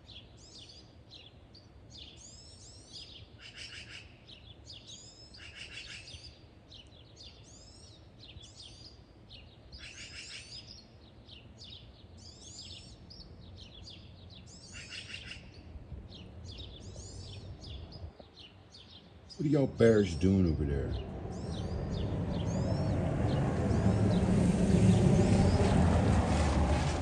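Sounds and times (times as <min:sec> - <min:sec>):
songbirds singing: 0:00.0 - 0:27.0
low steady rumble: 0:19.7 - 0:27.0.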